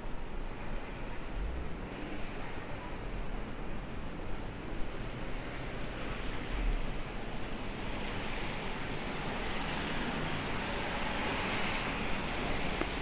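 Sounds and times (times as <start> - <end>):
car tyres swishing on wet pavement: 7.6 - 13.0.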